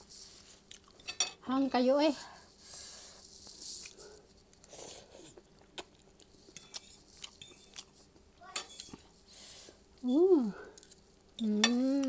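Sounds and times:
person chewing: 0:00.6 - 0:01.0, 0:03.4 - 0:08.2.

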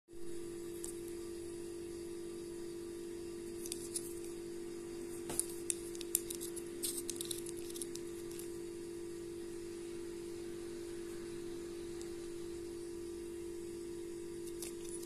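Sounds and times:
steady low hum: 0:00.1 - 0:15.0.

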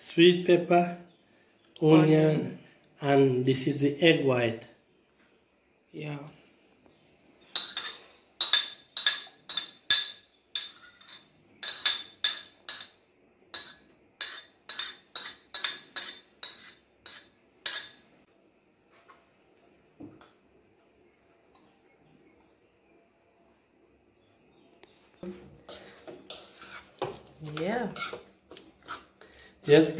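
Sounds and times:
metal spoon clinking on a plate: 0:07.6 - 0:18.0.

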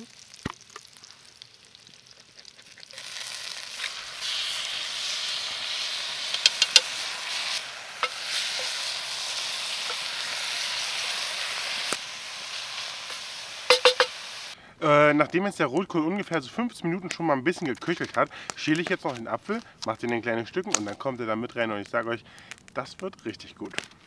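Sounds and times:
cabbage sizzling in pan: 0:00.0 - 0:14.6.

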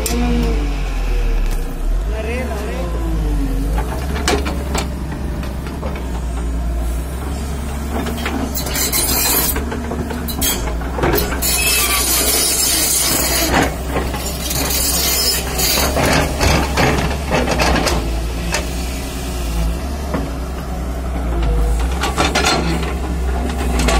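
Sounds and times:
excavator diesel engine running: 0:00.0 - 0:23.9.

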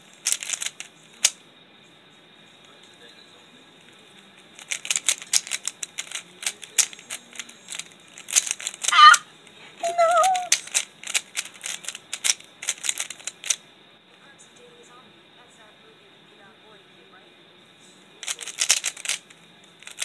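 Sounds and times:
puzzle cube clicking: 0:00.2 - 0:01.4, 0:04.6 - 0:09.2, 0:09.8 - 0:13.6, 0:18.2 - 0:20.0.

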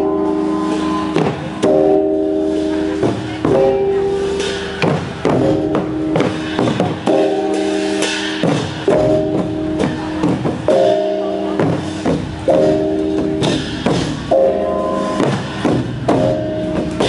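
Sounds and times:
drum strokes: 0:00.0 - 0:17.0
hand-held gongs ringing: 0:00.0 - 0:17.0.

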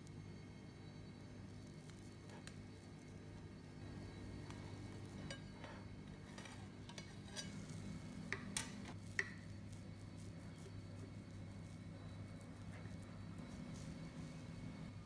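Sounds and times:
steady low hum: 0:00.0 - 0:15.0
metal scraping on ceramic plate: 0:05.2 - 0:09.0.

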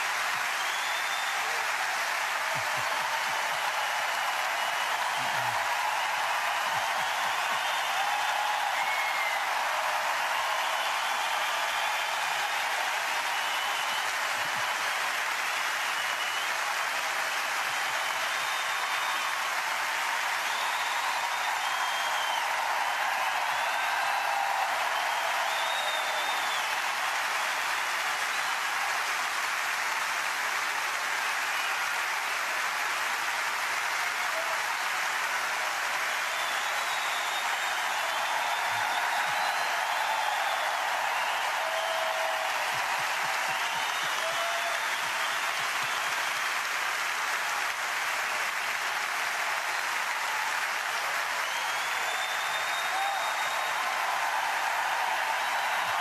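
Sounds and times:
crowd applauding: 0:00.0 - 0:56.0.

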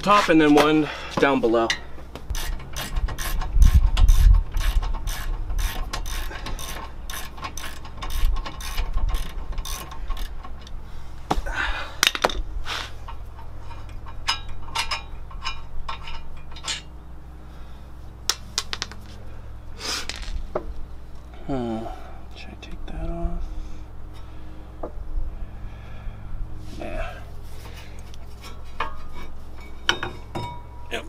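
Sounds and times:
ratchet wrench clicking: 0:02.3 - 0:10.4.

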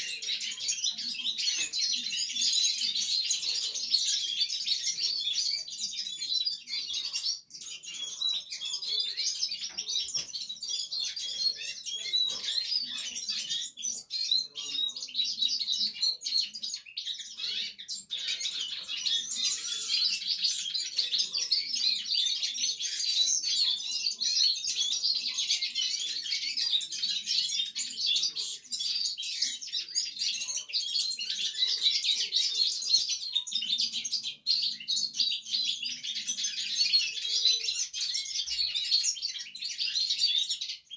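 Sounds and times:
canaries twittering: 0:00.0 - 0:40.9.

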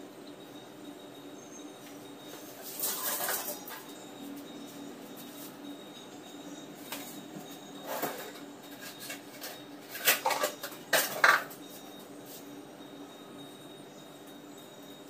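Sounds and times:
dishes clinking and knocking: 0:07.8 - 0:11.6.

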